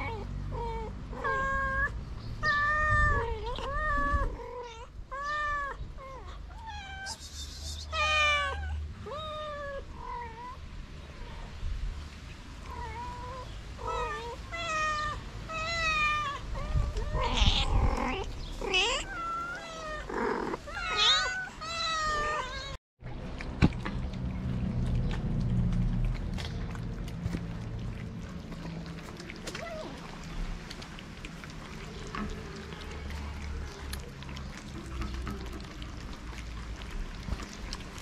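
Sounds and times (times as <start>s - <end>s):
kittens meowing: 12.7s - 22.8s.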